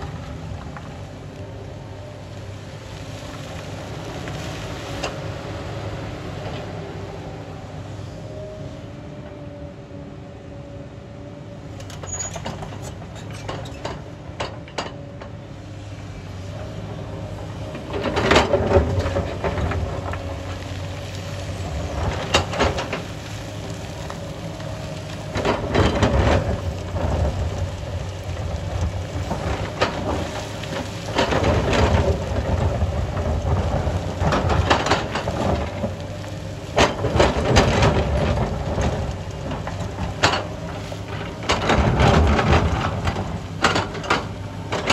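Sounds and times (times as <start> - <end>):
excavator diesel engine running: 0.0 - 44.9
rocks crashing and rattling: 17.8 - 44.9.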